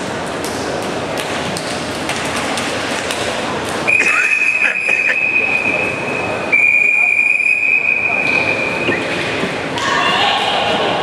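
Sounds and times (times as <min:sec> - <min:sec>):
crowd murmur: 0:00.0 - 0:11.0.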